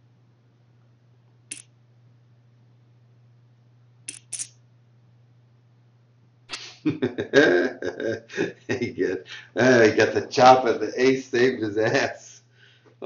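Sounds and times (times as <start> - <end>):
steady low hum: 0.0 - 13.0
poker chip clicks: 4.1 - 4.5.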